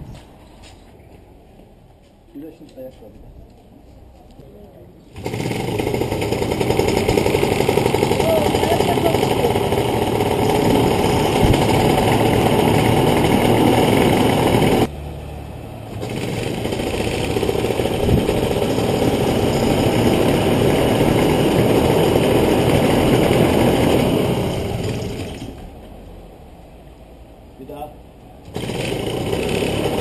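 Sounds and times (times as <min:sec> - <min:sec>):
paramotor engine running: 0:05.2 - 0:14.9, 0:15.8 - 0:25.7, 0:28.5 - 0:30.0.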